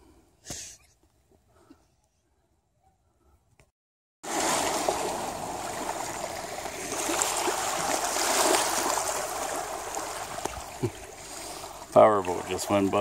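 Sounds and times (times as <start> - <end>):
small splashes: 4.2 - 13.0
waves lapping on stony shore: 4.2 - 13.0.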